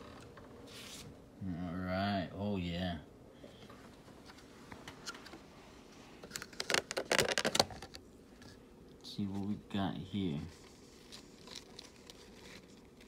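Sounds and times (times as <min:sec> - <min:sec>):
plastic cup and packing handling: 0:06.2 - 0:08.6.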